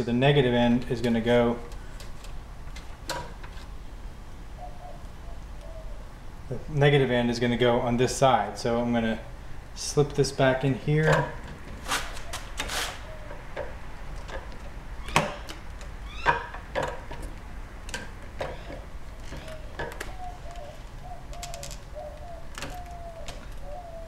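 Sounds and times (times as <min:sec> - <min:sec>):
faint wavering bird call: 0:04.5 - 0:06.2, 0:12.2 - 0:13.4, 0:16.0 - 0:16.5, 0:18.6 - 0:24.0.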